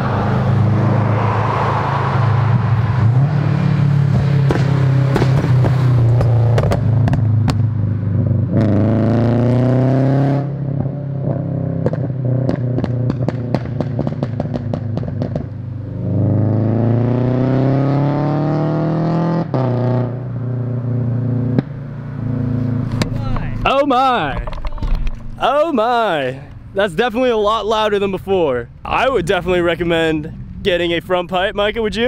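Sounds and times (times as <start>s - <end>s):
car engine revving: 0.0s - 32.0s
exhaust pops and crackles: 4.4s - 7.7s, 10.8s - 15.6s, 22.8s - 28.2s.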